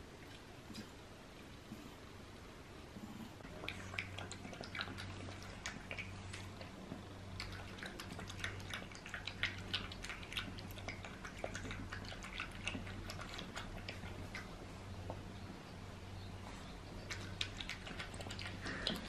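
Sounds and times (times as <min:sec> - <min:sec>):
steady low hum: 0:00.0 - 0:19.0
puppy lapping water: 0:03.4 - 0:15.6, 0:16.8 - 0:19.0.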